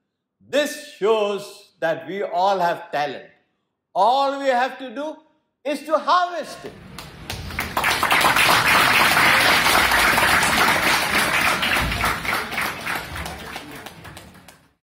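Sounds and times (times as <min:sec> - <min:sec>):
audience applause: 0:06.7 - 0:14.8.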